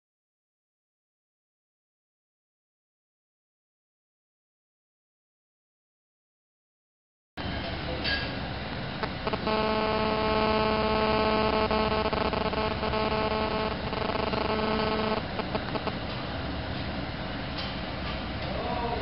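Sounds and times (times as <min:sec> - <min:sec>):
droning hum: 0:08.6 - 0:17.6
room noise: 0:09.0 - 0:16.1.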